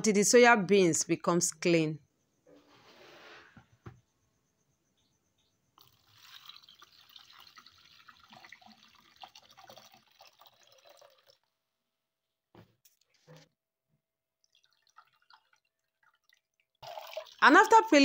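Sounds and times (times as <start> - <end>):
water draining through strainer: 5.8 - 11.5
water poured into a plastic strainer: 5.8 - 11.5, 14.4 - 17.8.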